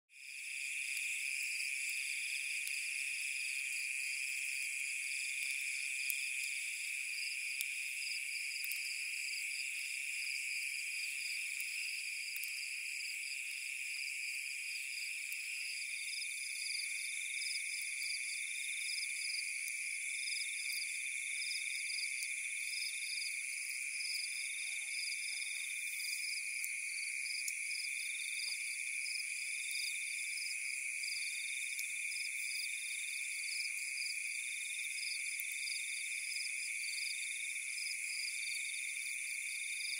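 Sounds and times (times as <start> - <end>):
insects and frogs trilling: 0.2 - 39.9.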